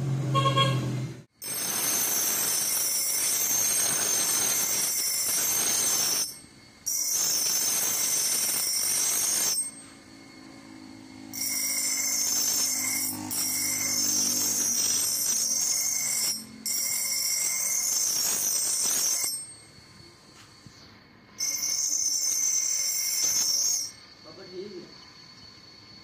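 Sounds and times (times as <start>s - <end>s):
grinder motor hum: 1.4s - 19.5s
axe blade on grinding wheel: 1.4s - 19.6s, 21.4s - 24.0s.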